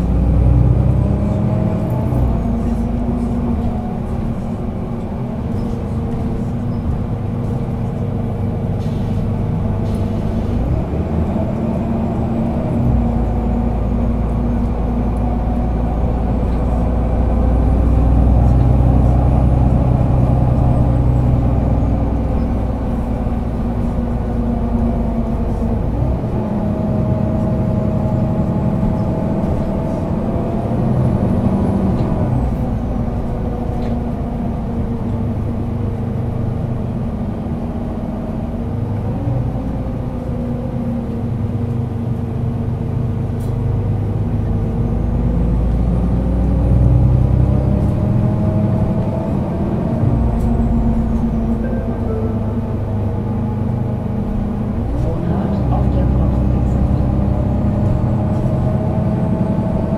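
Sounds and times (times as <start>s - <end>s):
city bus engine whine: 0.0s - 59.9s.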